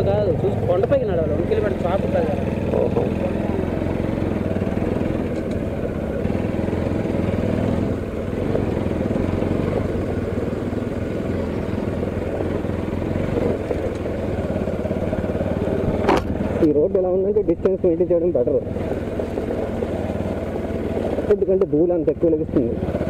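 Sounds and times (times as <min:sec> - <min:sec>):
motorcycle engine running: 0:00.0 - 0:23.0.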